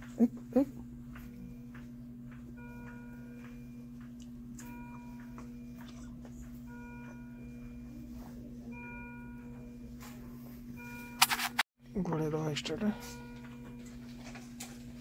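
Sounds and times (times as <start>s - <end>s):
low electrical hum: 0.0s - 15.0s
patient monitor alarm tone: 0.6s - 14.8s.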